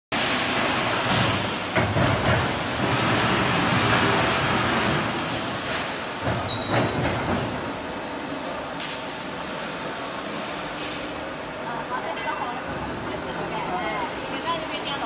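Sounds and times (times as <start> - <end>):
sharp knocks and clanks: 5.4 - 7.6.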